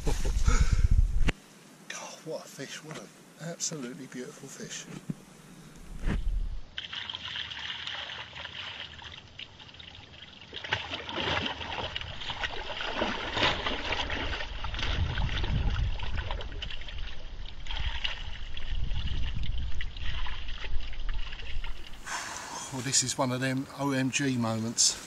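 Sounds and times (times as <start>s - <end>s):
water splashing onto fish: 6.7s - 22.7s.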